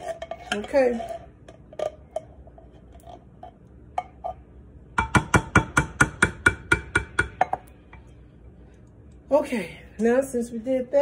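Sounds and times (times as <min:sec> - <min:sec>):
spatula scraping inside tin can: 0:00.0 - 0:03.3.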